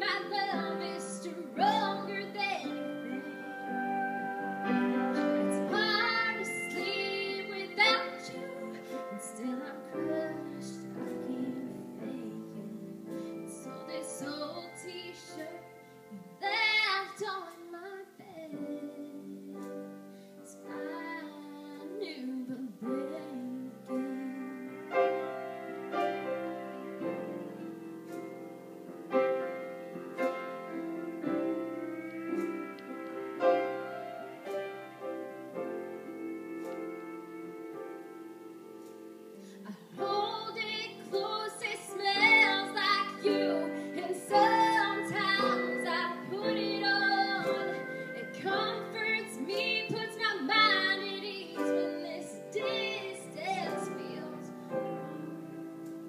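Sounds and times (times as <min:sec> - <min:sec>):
woman singing: 0:00.0 - 0:25.4, 0:39.4 - 0:56.0
piano accompaniment: 0:00.0 - 0:56.0.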